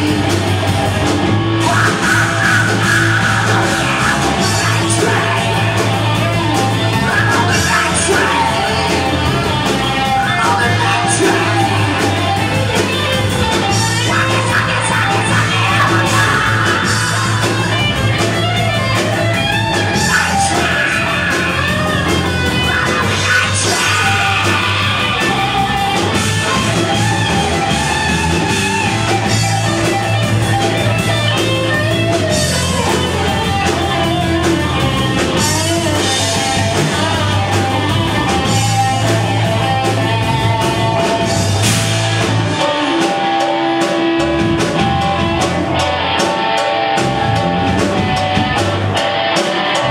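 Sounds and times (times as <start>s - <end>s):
distorted electric guitars: 0.0s - 49.9s
live rock band playing: 0.0s - 49.9s
lead vocal singing: 1.6s - 28.0s.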